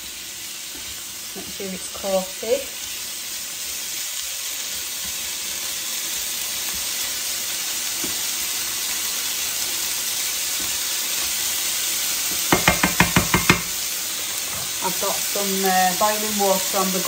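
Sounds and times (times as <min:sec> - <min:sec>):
vegetables sizzling in a frying pan: 0:00.0 - 0:17.0
sharp taps: 0:12.5 - 0:13.8.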